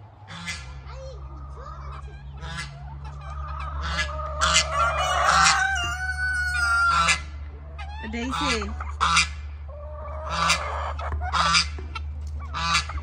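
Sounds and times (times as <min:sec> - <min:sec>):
chickens clucking and cackling: 0:00.0 - 0:13.0
chicken long squawk: 0:02.0 - 0:11.7.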